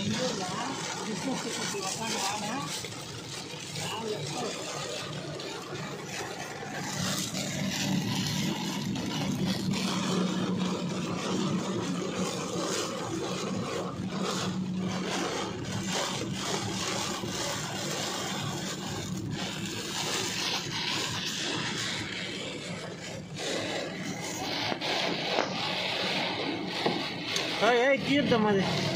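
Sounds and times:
engine and tyres hum: 0.0s - 28.9s
heavy rain on car: 0.0s - 28.9s
windscreen wipers scraping: 0.0s - 28.9s.

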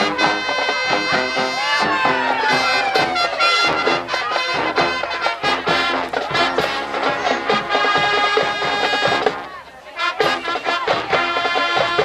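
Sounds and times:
brass section holding chords: 0.0s - 12.0s.

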